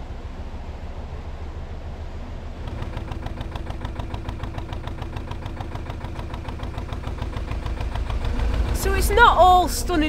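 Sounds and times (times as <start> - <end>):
boat diesel engine running: 2.5 - 10.0.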